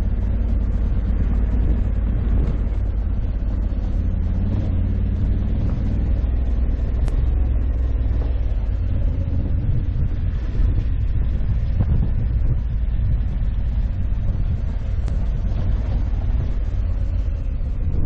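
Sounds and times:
heavy low rumble: 0.0 - 18.0
motorcycle engine running: 0.0 - 18.0.

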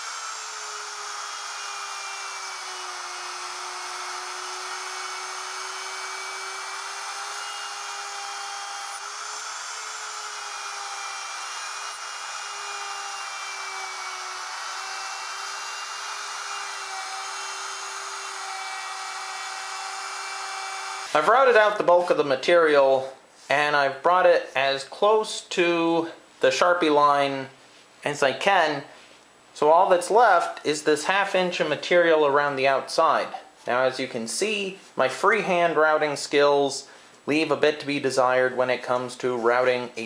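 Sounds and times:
router motor whine: 0.0 - 21.1
router bit cutting wood: 0.0 - 21.2.

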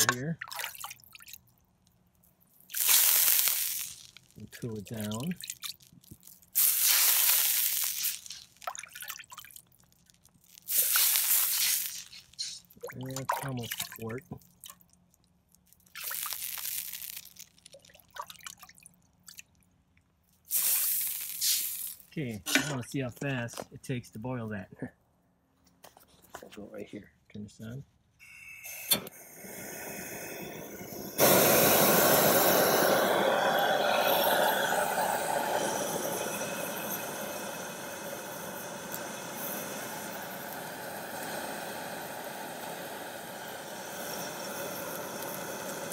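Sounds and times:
water pouring from ladle: 0.0 - 1.4, 2.7 - 14.8, 15.8 - 19.5
water dripping from ladle: 0.0 - 1.6, 2.7 - 19.7
gas burner hissing: 2.7 - 5.4, 6.6 - 8.6, 10.6 - 12.8, 20.5 - 22.9, 28.2 - 45.9.

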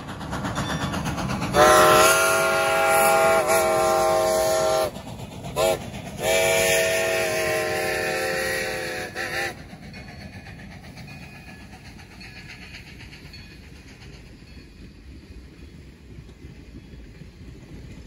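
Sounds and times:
faint train running rumble: 0.0 - 18.0
steam locomotive whistle: 1.5 - 5.0, 5.6 - 9.6.

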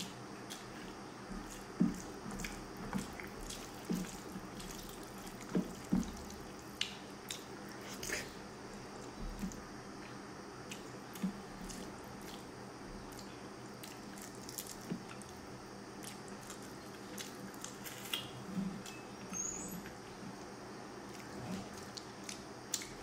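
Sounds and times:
chewing and mouth smacks: 1.4 - 8.3, 21.1 - 23.0.

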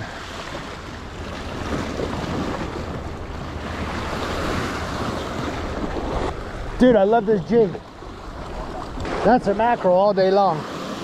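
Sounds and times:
wind rumbling on microphone: 0.0 - 9.6
sea surf washing in: 0.0 - 11.0.

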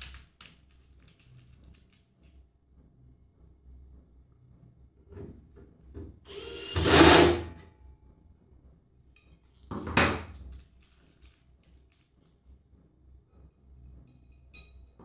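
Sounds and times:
clatter: 0.0 - 2.4, 9.2 - 12.6
cordless drill driving screw: 6.3 - 7.4.

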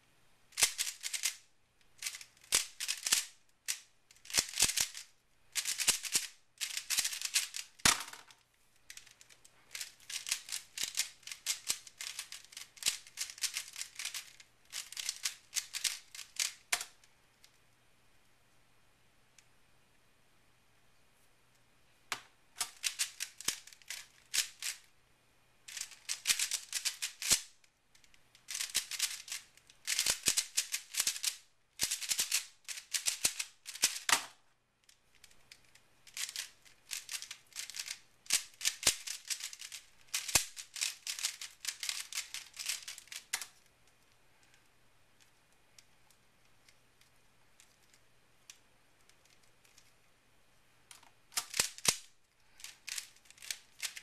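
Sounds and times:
puzzle cube clicking: 0.6 - 1.4, 2.0 - 5.0, 5.6 - 17.0, 22.6 - 24.8, 25.7 - 27.5, 28.4 - 34.4, 35.2 - 43.7, 50.9 - 54.0.

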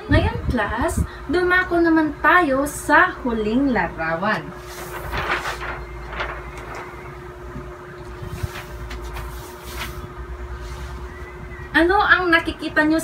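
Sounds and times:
faint hum: 0.0 - 13.0
paper posters rustling: 4.5 - 7.3, 8.1 - 11.1.

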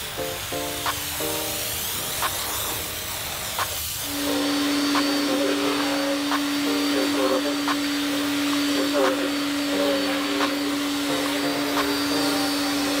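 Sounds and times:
cordless drill motor whine: 4.0 - 13.0.

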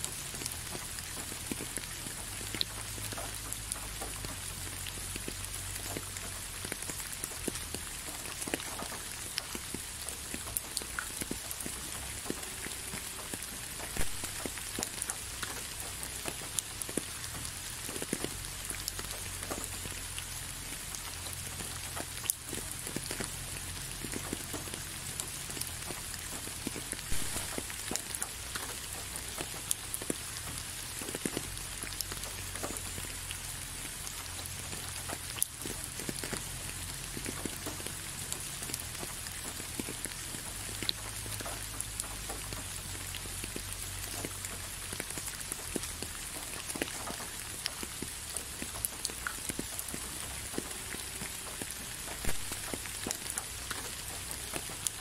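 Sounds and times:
raindrops ticking close by: 0.0 - 55.0
steady rain hiss: 0.0 - 55.0.

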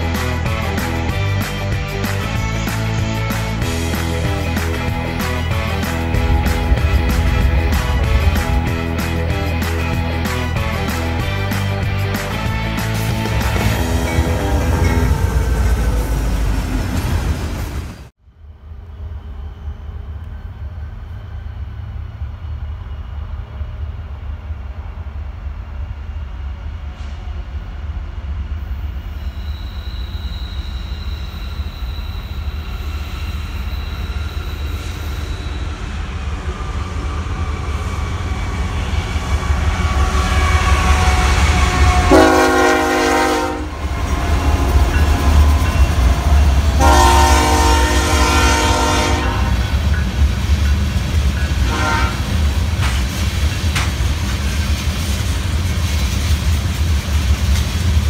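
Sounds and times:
diesel train engine rumble: 0.0 - 58.0
locomotive horn blasts: 39.6 - 49.8, 51.6 - 52.4.

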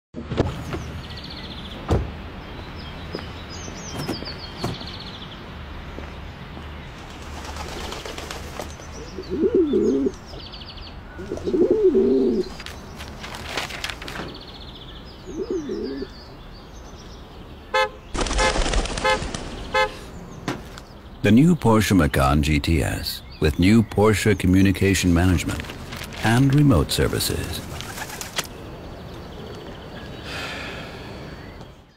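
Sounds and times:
street ambience: 0.2 - 31.9
small birds chirping: 0.5 - 31.9
pigeon cooing: 9.1 - 10.2, 11.2 - 12.5, 15.3 - 16.2
car horn toot: 17.7 - 18.0, 19.0 - 20.0.

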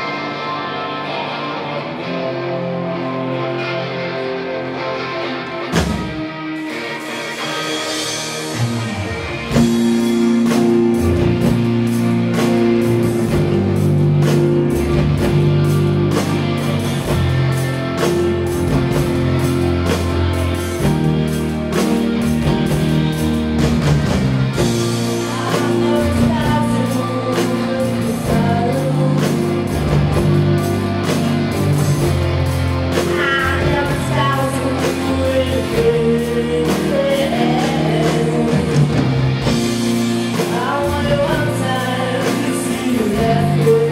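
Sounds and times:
bass guitar: 0.0 - 43.9
electric guitar: 0.0 - 43.9
keyboard: 0.0 - 43.9
drum kit: 5.6 - 43.9
woman singing: 25.2 - 30.0, 33.1 - 39.0, 40.3 - 43.9.

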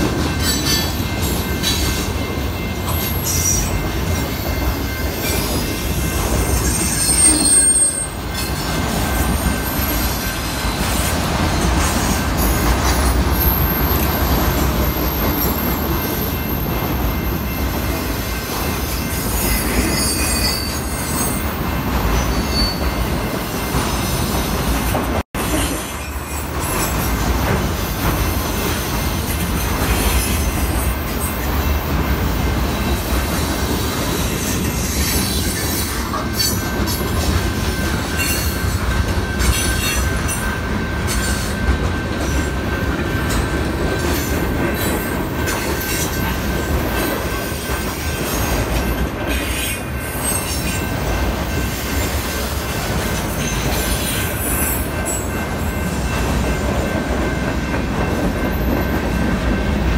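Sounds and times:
train wheels rumbling on rails: 0.0 - 59.9
wheel squeal: 4.4 - 14.4, 18.9 - 21.5, 22.1 - 23.1.

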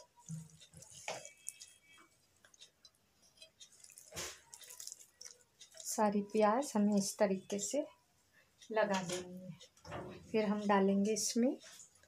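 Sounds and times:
wet rustling and squishing of onions: 3.4 - 6.2.

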